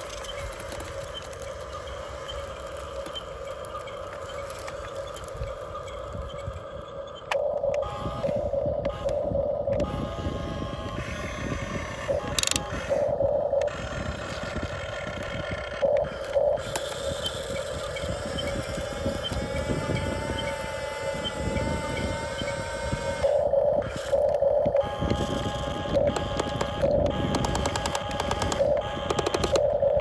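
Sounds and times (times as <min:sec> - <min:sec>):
toy excavator motors whining: 0:00.0 - 0:30.0.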